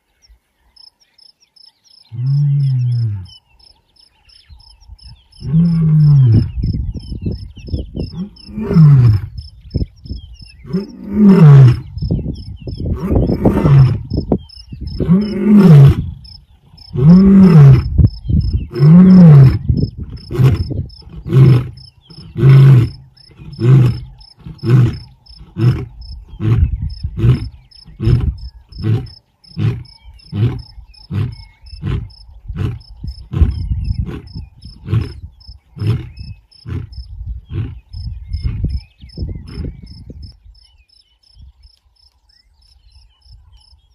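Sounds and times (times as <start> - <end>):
lion roaring: 10.7 - 11.9, 12.9 - 14.1, 15.0 - 16.2, 16.9 - 17.9, 18.6 - 36.9
lion grunting: 15.0 - 16.2, 18.6 - 38.8.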